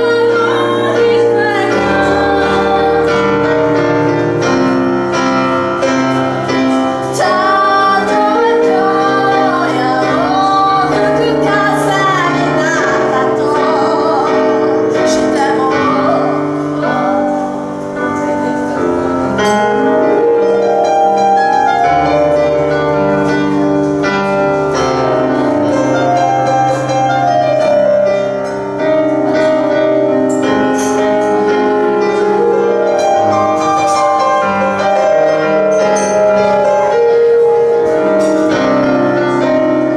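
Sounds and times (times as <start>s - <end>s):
woman singing with vibrato: 0.0s - 4.2s, 7.0s - 18.8s
grand piano: 0.0s - 39.9s.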